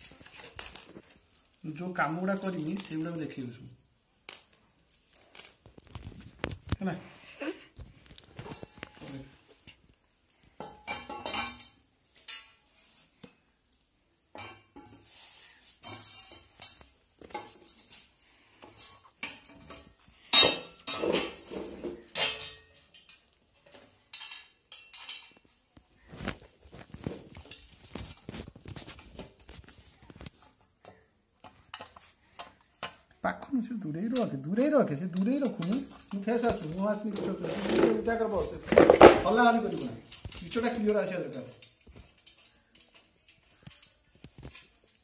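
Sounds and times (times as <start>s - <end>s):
metal clinks and rattles: 0.0s - 6.1s, 10.6s - 12.7s, 15.8s - 25.7s, 35.0s - 45.0s.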